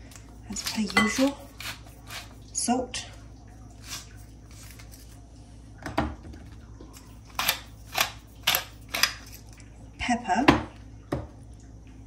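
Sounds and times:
wooden salt grinder grinding: 0.4s - 2.4s.

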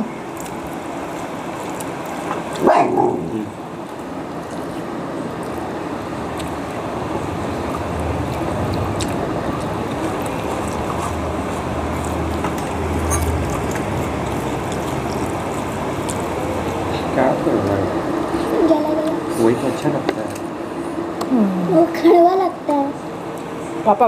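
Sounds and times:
low hum: 0.0s - 24.0s
steady rushing noise: 3.2s - 18.6s.

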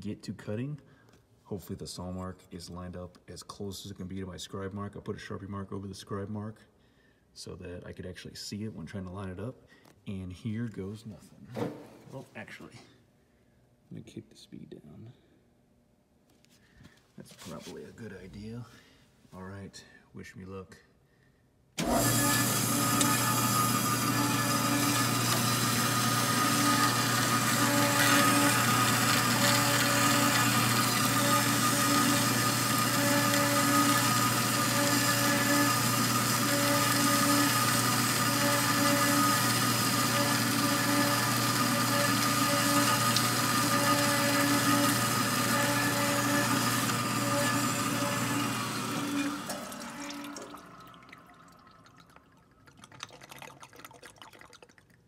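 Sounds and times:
bandsaw cutting metal: 21.8s - 50.7s.

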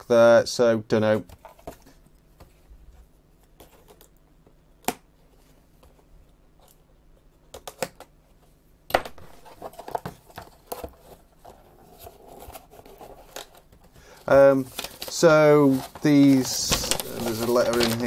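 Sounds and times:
cardboard scraping and rustling: 9.2s - 18.0s.

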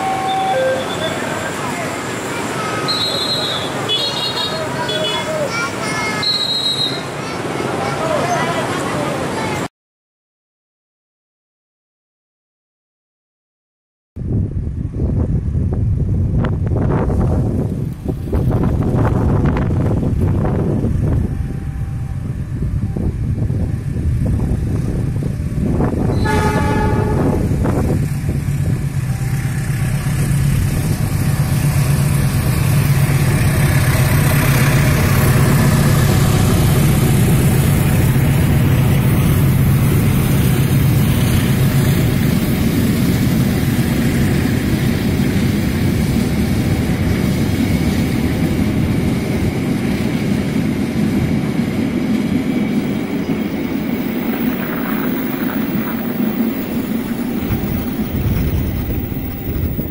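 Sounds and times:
train horn blast: 0.0s - 1.2s, 26.1s - 27.7s
locomotive engine drone: 0.0s - 5.5s, 14.2s - 59.9s
wagons clattering over rails: 52.8s - 59.9s.

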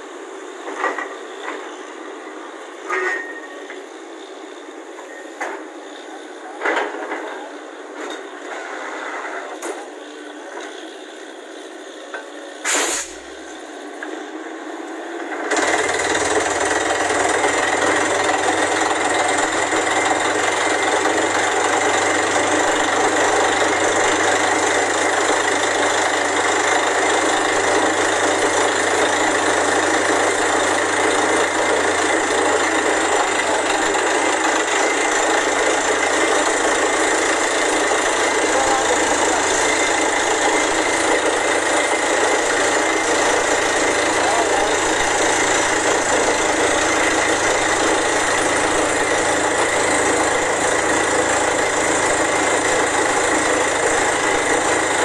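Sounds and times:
drilling rig running: 15.5s - 55.0s.

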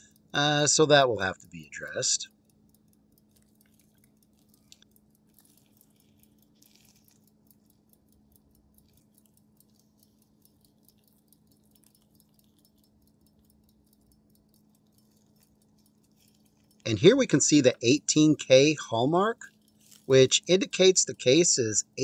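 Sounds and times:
faint rapid ticking: 0.0s - 22.0s
faint steady hum: 0.0s - 22.0s.

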